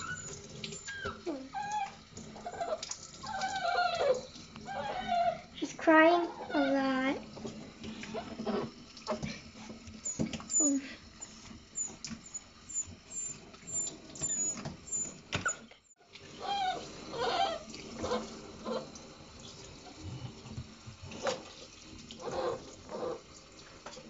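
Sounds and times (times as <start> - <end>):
puppy whining and crying: 0.0 - 5.6, 10.0 - 18.8
sink sprayer water splashing: 0.0 - 24.0.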